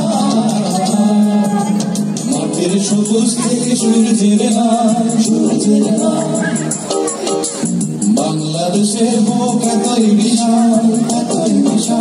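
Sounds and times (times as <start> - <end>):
song with light percussion: 0.0 - 12.0.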